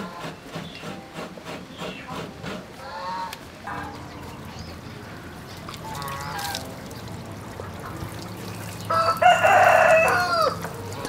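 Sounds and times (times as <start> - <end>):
poultry calling: 1.7 - 6.8, 8.8 - 11.0
water sprinkling from watering can: 4.3 - 11.0
rooster crowing: 8.9 - 11.0.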